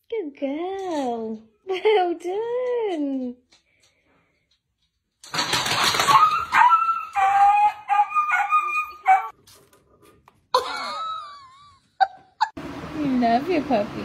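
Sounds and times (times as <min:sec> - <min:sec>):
dog yowling: 0:06.0 - 0:09.3.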